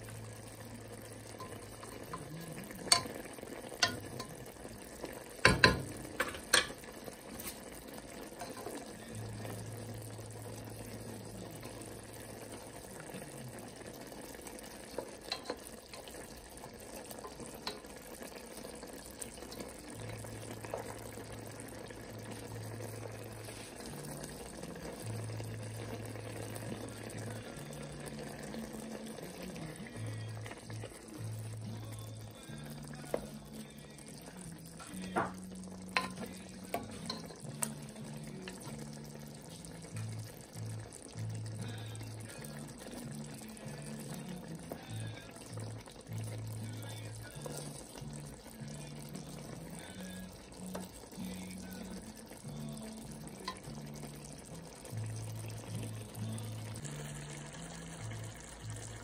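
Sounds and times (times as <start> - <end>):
pot bubbling: 0.0 - 59.0
spatula clacking against pot: 2.9 - 3.2, 3.8 - 4.5, 5.4 - 6.8, 15.3 - 16.1, 36.0 - 37.3.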